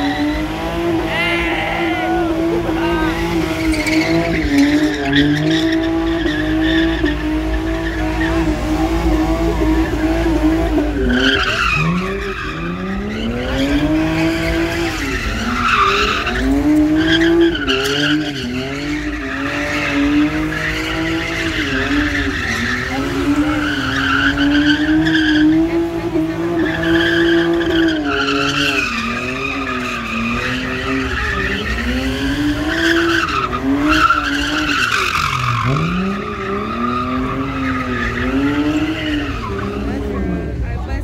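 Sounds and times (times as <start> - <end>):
tyres squealing: 0.0 - 40.4
car engine revving high: 0.0 - 41.0.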